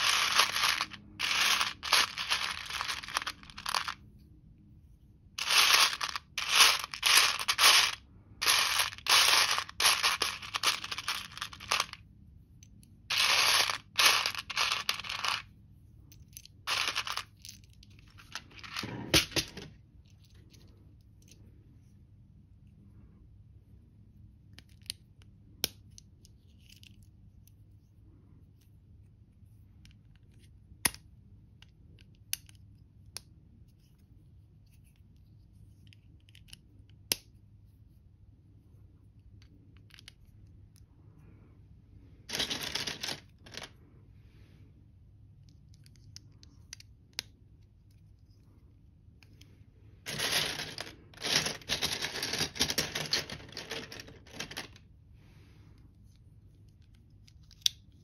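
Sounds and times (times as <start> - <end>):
plastic pieces rattling: 0.0 - 4.0, 5.4 - 12.0, 13.1 - 15.5, 16.7 - 19.7, 42.3 - 43.7, 50.1 - 54.8.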